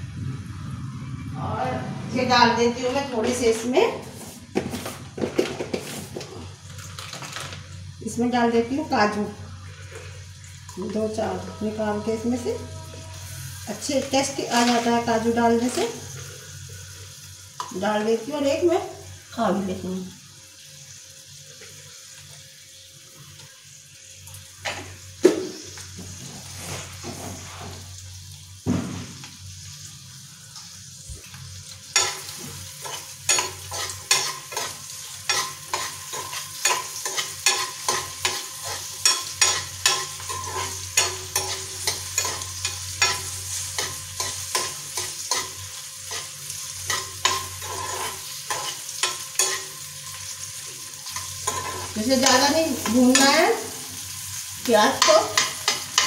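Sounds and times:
food sizzling in frying pan: 0.0 - 56.0
spatula scraping pan: 31.9 - 53.4.

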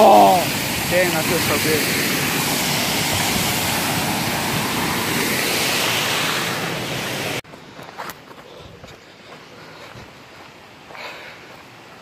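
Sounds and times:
creek water rushing over rocks: 0.0 - 7.4.

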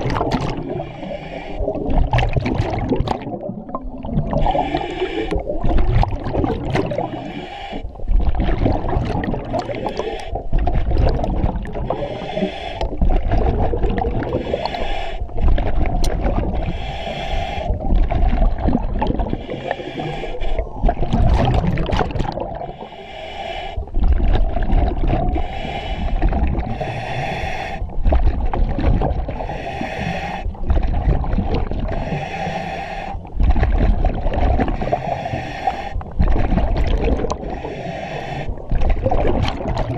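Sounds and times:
gurgling exhaust bubbles: 0.0 - 0.9, 1.6 - 7.2, 8.0 - 12.2, 12.8 - 14.7, 15.4 - 16.7, 17.8 - 19.7, 20.7 - 22.8, 23.9 - 25.4, 27.9 - 29.5, 30.6 - 32.2, 33.3 - 35.1, 36.0 - 37.7, 38.5 - 39.9
regulator hissing inhalations: 0.7 - 1.8, 4.4 - 5.4, 7.0 - 8.0, 9.8 - 10.3, 11.8 - 12.9, 14.3 - 15.4, 16.6 - 17.8, 19.3 - 20.8, 22.7 - 23.9, 25.4 - 27.9, 29.4 - 30.6, 32.0 - 33.3, 34.8 - 36.0, 37.4 - 38.6.

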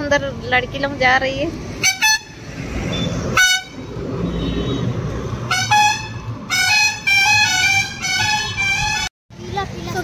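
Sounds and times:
traffic rumble: 0.0 - 10.0
vehicle horn honking: 1.8 - 9.1.

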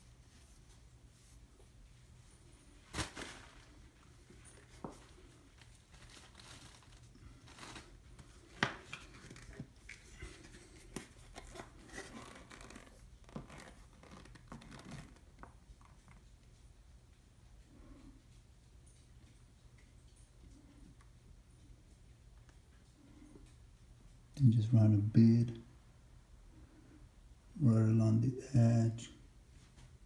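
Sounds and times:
cloth rustling: 0.0 - 16.2.

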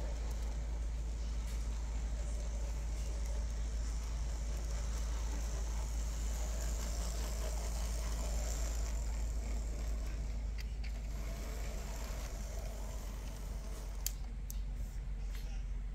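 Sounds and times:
model train motor whirring: 0.0 - 15.0
faint clicks: 9.8 - 14.7.

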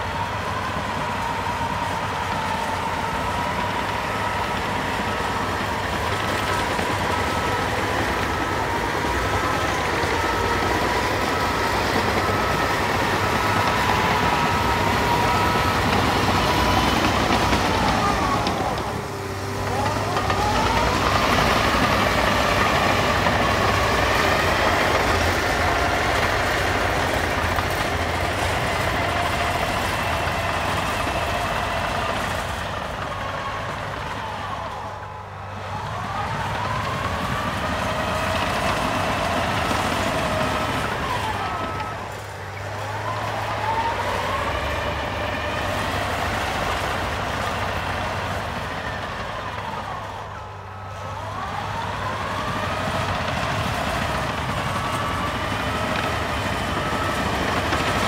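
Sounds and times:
diesel engine running: 0.0 - 58.0.

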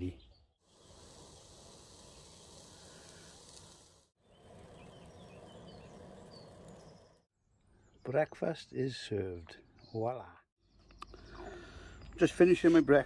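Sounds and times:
vegetables and egg sizzling: 0.6 - 7.3.

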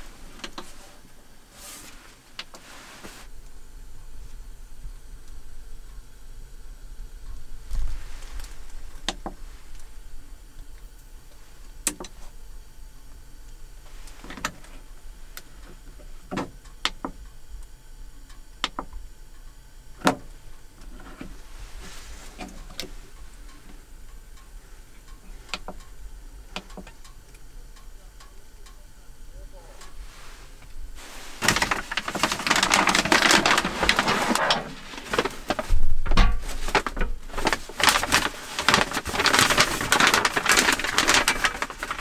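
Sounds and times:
soft rustling of handling: 0.0 - 3.3, 20.8 - 23.8, 29.7 - 42.0.

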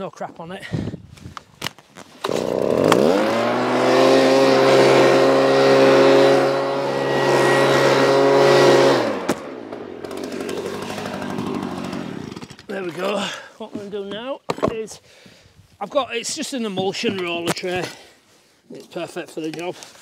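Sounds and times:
leaf blower running: 2.2 - 12.7.

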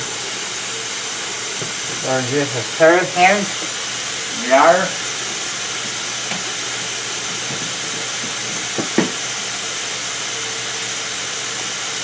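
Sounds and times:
faucet running into steel sink: 1.5 - 9.8.

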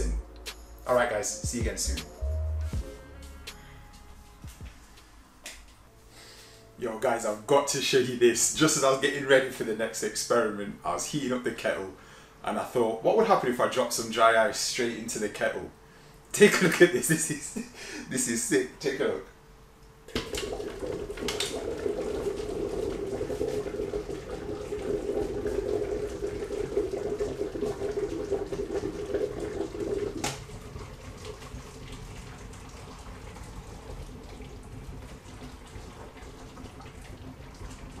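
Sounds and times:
dry ice bubbling in water: 20.2 - 38.0.

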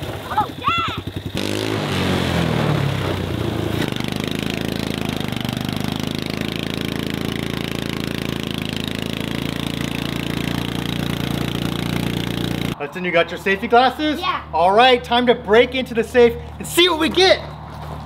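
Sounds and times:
small engine running under load: 0.0 - 12.8.

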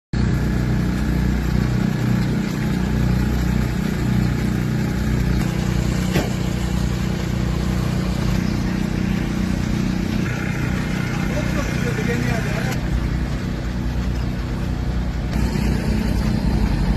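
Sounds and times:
engine humming: 0.2 - 16.9.

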